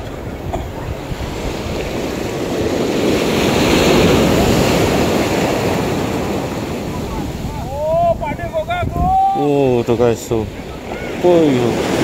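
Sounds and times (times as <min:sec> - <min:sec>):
sea waves washing onto shore: 0:00.0 - 0:12.0.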